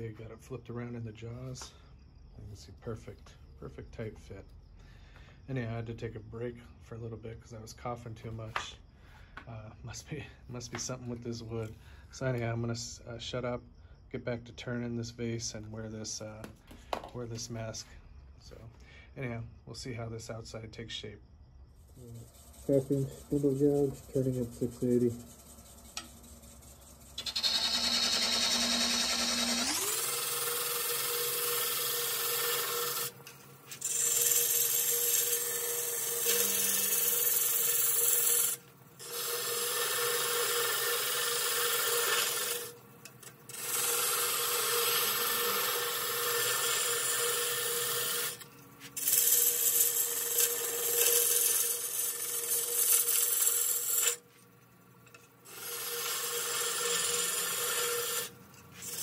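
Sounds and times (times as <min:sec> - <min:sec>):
gouge cutting wood on lathe: 0:22.0 - 0:42.8, 0:43.5 - 0:54.2, 0:55.5 - 0:59.0.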